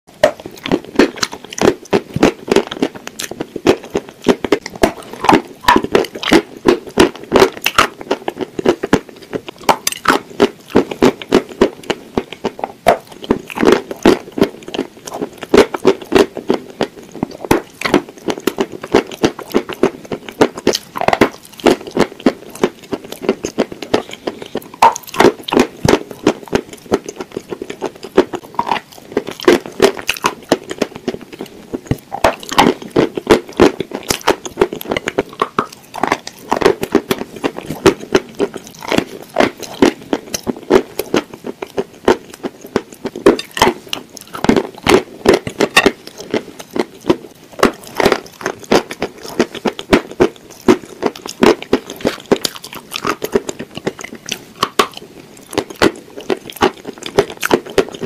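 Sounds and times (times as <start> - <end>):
crunching and chewing: 0.1 - 58.0.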